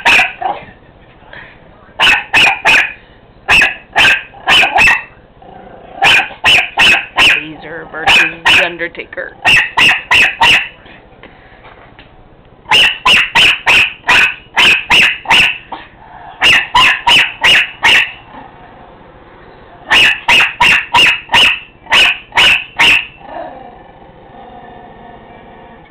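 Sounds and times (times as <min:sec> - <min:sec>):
small dog barking: 0:00.0 - 0:00.6, 0:02.0 - 0:05.2, 0:06.0 - 0:08.7, 0:09.4 - 0:10.8, 0:12.7 - 0:18.3, 0:19.9 - 0:23.2.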